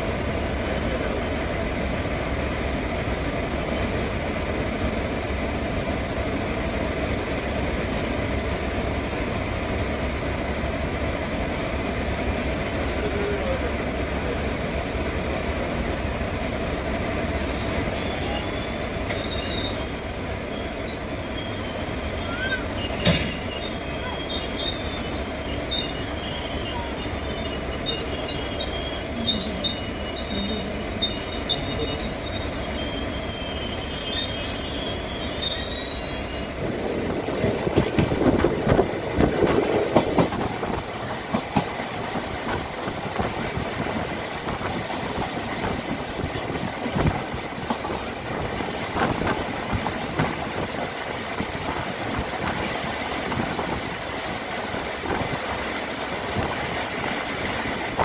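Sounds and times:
train coaches rumbling: 0:00.0 - 0:58.0
high-pitched wheel squeal: 0:17.5 - 0:36.6.

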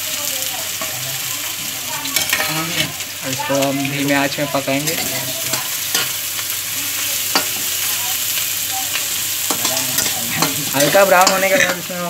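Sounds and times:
onions sizzling in oil: 0:00.0 - 0:12.0
spatula scraping a pan: 0:02.1 - 0:03.0.

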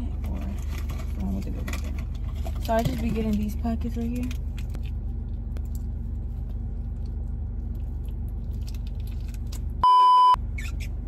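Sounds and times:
censor bleep: 0:09.8 - 0:10.4.

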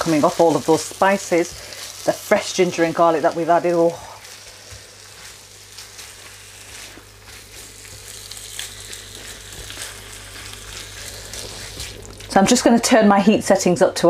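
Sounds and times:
chicken sizzling and crackling: 0:00.0 - 0:12.8.

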